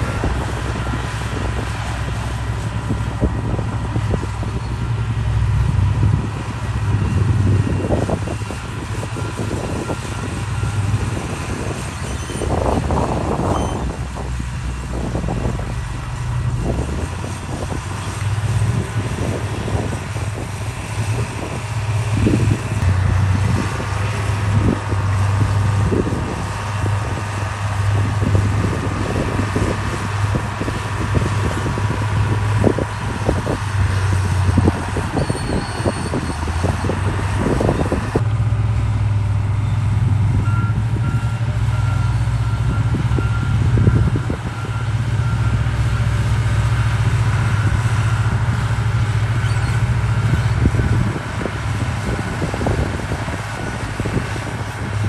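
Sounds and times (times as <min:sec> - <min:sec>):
heavy machinery diesel engine: 0:00.0 - 0:55.0
reversing alarm beeping: 0:07.6 - 0:12.8, 0:40.4 - 0:46.2.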